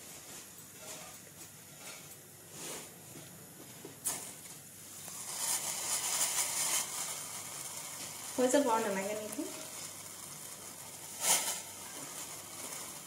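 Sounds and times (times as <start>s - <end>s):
sugar pouring into water: 4.9s - 13.0s.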